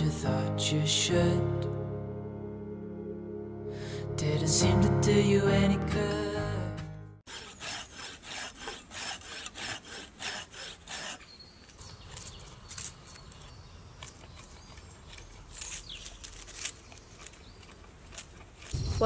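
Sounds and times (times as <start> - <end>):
hand tool scraping hollow log: 7.2 - 19.0.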